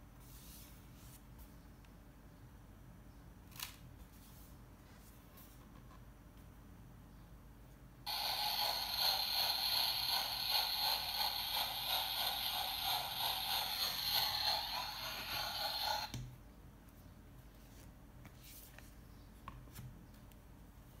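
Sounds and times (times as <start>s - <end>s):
steam train chuffing from small speaker: 8.1s - 16.1s.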